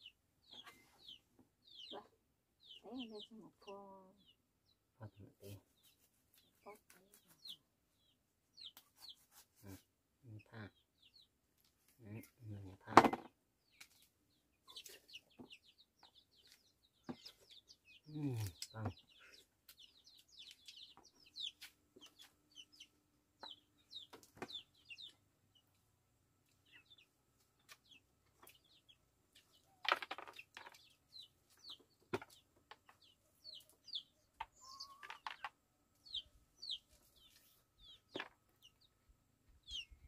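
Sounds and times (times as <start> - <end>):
chickens peeping and clucking: 13.7 - 40.0.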